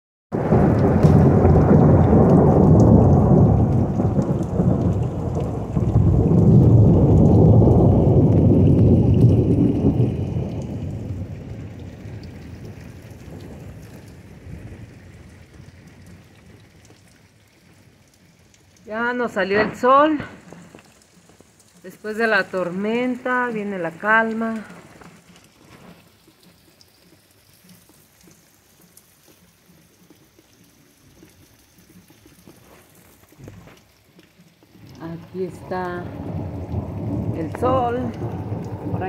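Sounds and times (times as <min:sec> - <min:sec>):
thunder rumbling: 0:00.3 - 0:16.7, 0:18.8 - 0:21.0, 0:34.7 - 0:39.0.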